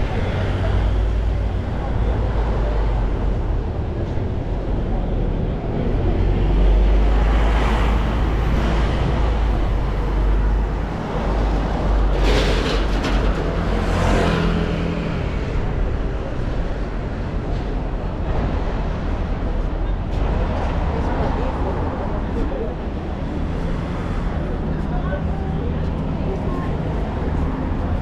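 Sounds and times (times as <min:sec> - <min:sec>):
road traffic passing: 0:00.0 - 0:28.0.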